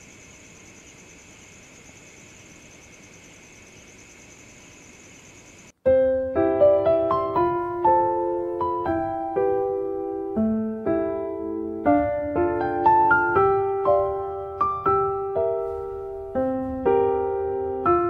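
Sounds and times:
crickets chirping: 0:00.0 - 0:05.8
piano background music: 0:05.8 - 0:18.0.

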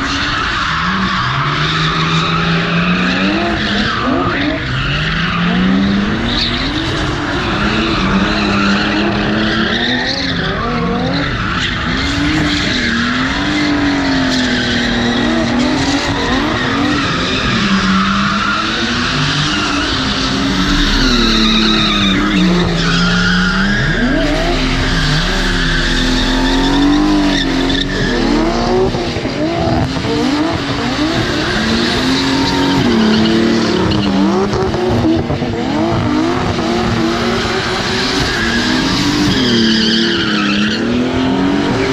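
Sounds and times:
car engines revving: 0:00.0 - 0:41.9.

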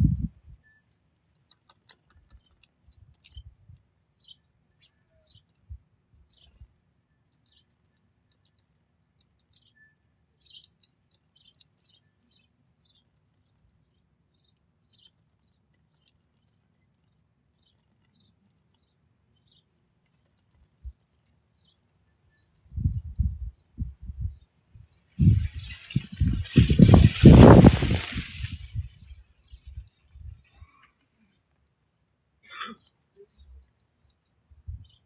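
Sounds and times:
faint songbird chirps: 0:00.1 - 0:01.0, 0:02.1 - 0:31.5, 0:32.4 - 0:35.0
soft low thumps: 0:22.7 - 0:24.4.

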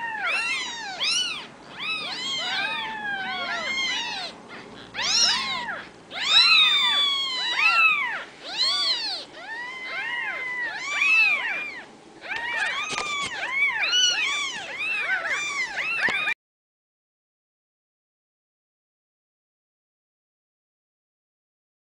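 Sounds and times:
kittens mewing: 0:00.0 - 0:16.4.

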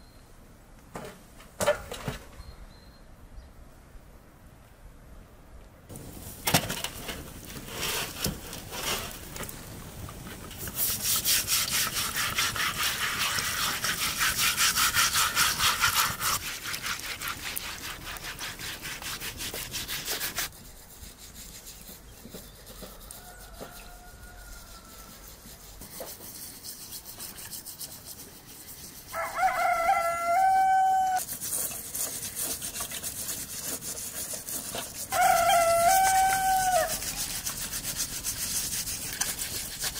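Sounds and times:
scrubbing in metal basin of water: 0:06.6 - 0:30.0, 0:31.2 - 0:39.9
rooster crowing: 0:22.7 - 0:25.3, 0:29.1 - 0:31.2, 0:35.1 - 0:37.1.

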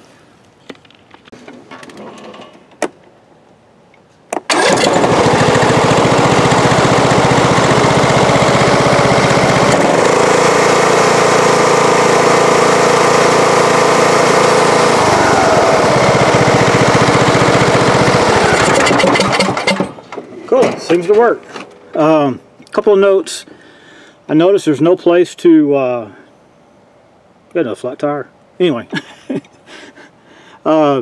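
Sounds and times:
riding lawnmower engine: 0:04.4 - 0:22.4.

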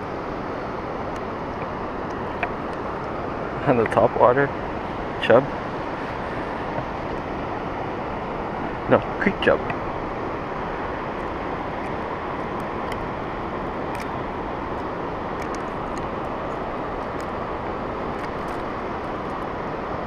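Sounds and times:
steady rushing noise: 0:00.0 - 0:20.0.

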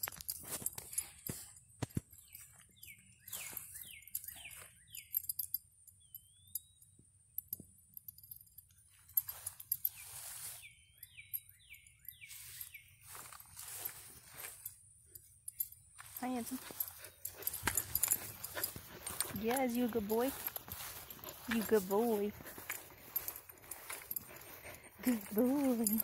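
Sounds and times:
footsteps in grass: 0:09.0 - 0:10.8, 0:12.2 - 0:15.3, 0:15.9 - 0:26.0.

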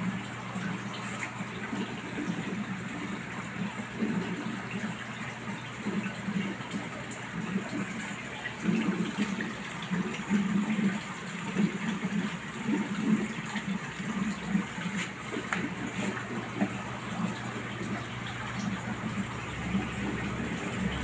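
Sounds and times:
aquarium water gurgling: 0:00.0 - 0:21.0.

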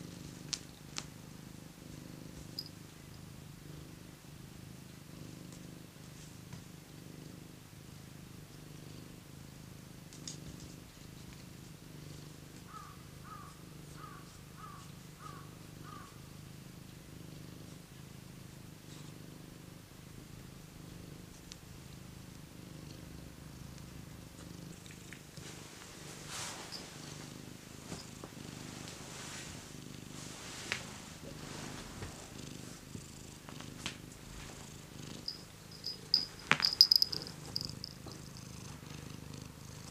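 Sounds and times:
cat purring: 0:00.0 - 0:39.9
collar bell jingling: 0:35.2 - 0:38.6.

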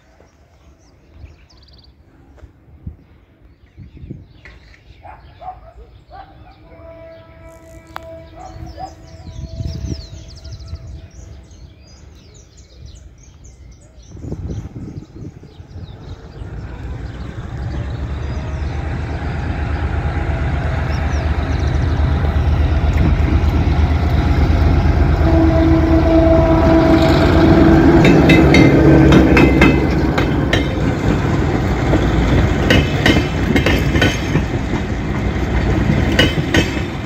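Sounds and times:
locomotive engine drone: 0:15.7 - 0:37.0
train wheels clicking over rail joints: 0:27.8 - 0:37.0.

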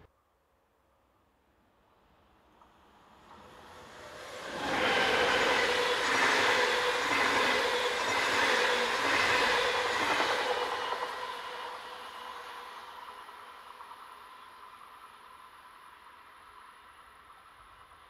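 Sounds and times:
train passing at speed: 0:01.6 - 0:18.0.

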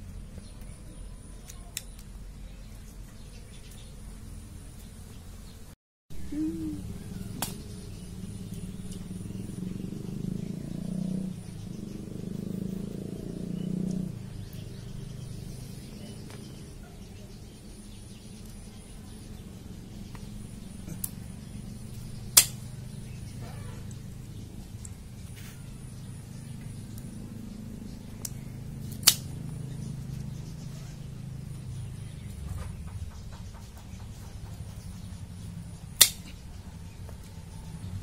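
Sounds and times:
low hum: 0:00.0 - 0:33.4
pruning shears snapping stem: 0:01.4 - 0:02.1, 0:07.3 - 0:07.7, 0:22.3 - 0:22.7, 0:28.2 - 0:29.3, 0:36.0 - 0:36.4
shears clicking: 0:07.0 - 0:09.5, 0:20.2 - 0:23.2, 0:28.2 - 0:29.6, 0:35.6 - 0:36.5.

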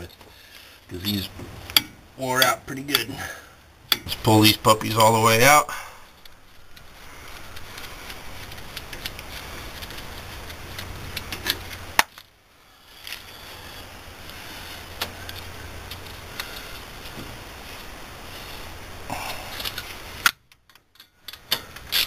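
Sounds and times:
steady low hum: 0:00.0 - 0:22.0
metallic clicks of hand tools: 0:03.9 - 0:04.2.

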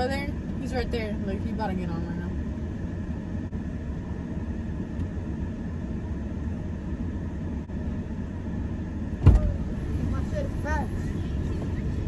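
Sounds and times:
car engine rumbling: 0:00.0 - 0:12.0
heavy thump: 0:09.2 - 0:09.6.

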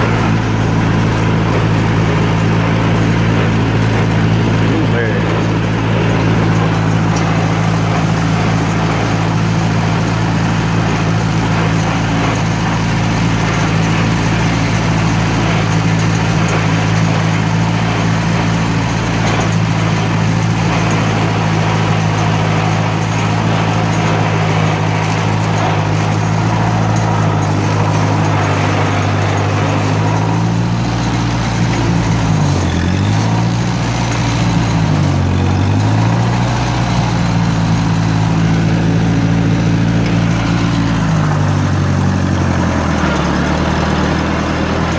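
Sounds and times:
tractor engine running: 0:00.0 - 0:44.9.

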